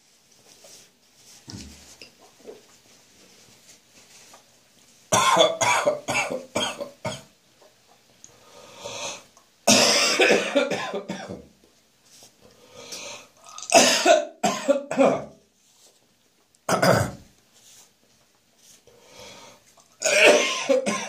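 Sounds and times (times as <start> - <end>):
person coughing hard: 5.2 - 7.3, 9.7 - 11.4, 13.7 - 15.4, 16.7 - 17.2, 20.0 - 21.0.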